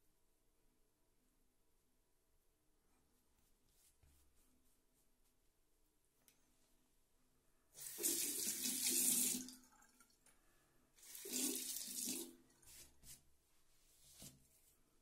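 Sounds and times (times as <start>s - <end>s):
tap water running into sink: 7.8s - 10.0s, 11.0s - 12.3s.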